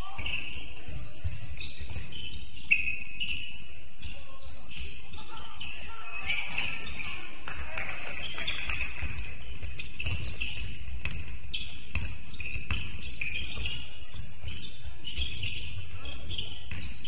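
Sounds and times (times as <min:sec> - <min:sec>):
basketball bouncing on court: 0:00.0 - 0:02.6, 0:08.2 - 0:17.0.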